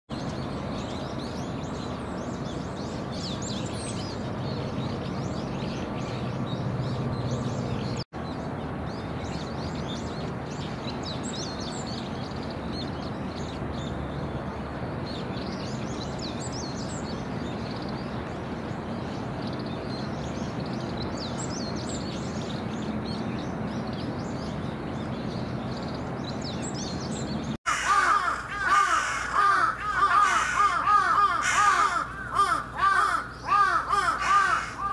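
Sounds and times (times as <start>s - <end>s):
small birds chirping: 0.1s - 34.9s
crows cawing harshly: 27.7s - 34.9s.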